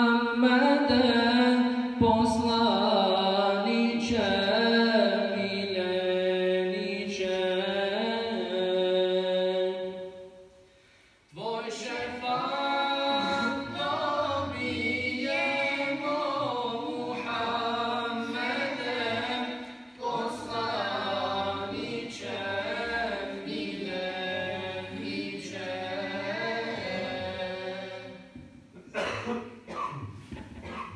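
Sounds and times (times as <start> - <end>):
man chanting: 0.0 - 10.2, 11.4 - 19.5.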